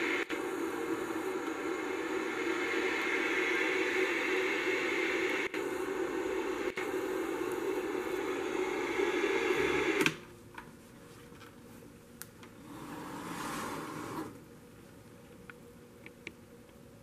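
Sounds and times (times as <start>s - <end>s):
tv static hiss: 0.0s - 10.4s.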